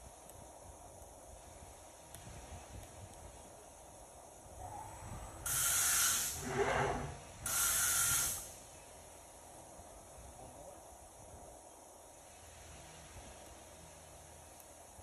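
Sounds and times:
mechanical whir: 0:04.6 - 0:08.2
compressed air hissing: 0:04.6 - 0:08.7.

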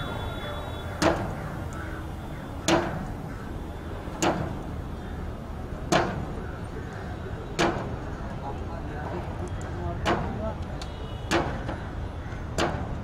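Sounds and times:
hammer striking wooden beam: 0:01.0 - 0:01.4, 0:02.6 - 0:03.1, 0:04.2 - 0:04.6, 0:05.9 - 0:06.4, 0:07.6 - 0:08.0, 0:10.0 - 0:10.4, 0:11.3 - 0:11.8, 0:12.6 - 0:13.0.

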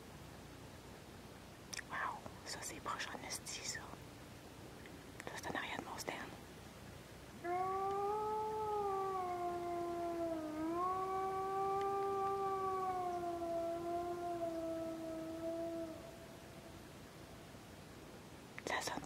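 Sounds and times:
wolf howling: 0:07.4 - 0:16.9.

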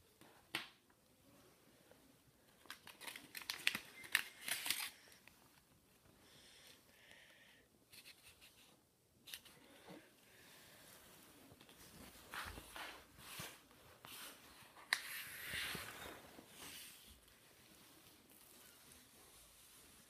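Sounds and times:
paper rustling and crinkling: 0:02.5 - 0:05.3.

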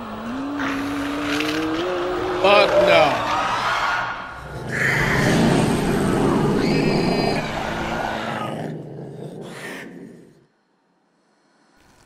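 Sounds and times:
roaring sound effect: 0:00.0 - 0:10.4
creature screaming: 0:00.6 - 0:08.8.

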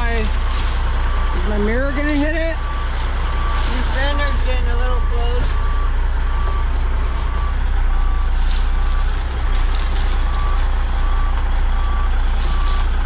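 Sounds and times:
truck engine rumbling: 0:00.0 - 0:13.0
truck reversing alarm beeping: 0:00.0 - 0:13.0.

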